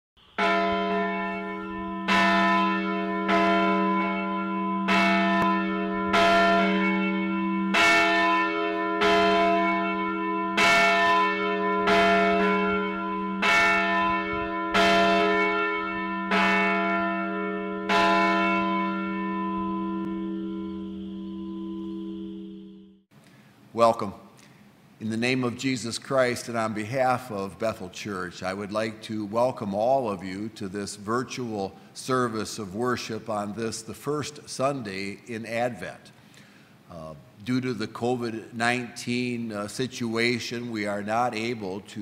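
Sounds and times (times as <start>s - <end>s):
church bell tolling: 0.2s - 23.0s.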